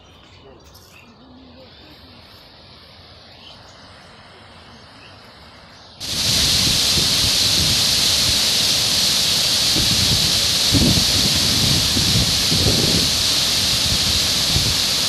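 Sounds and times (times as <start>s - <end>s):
water flowing over a low spill: 6.0s - 15.0s
waterfall rushing onto rock: 6.0s - 15.0s.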